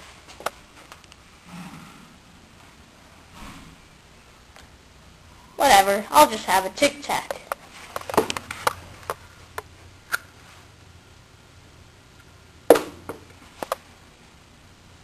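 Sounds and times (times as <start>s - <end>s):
faint low room hum: 0.0s - 15.0s
sharp knock: 12.7s - 13.2s.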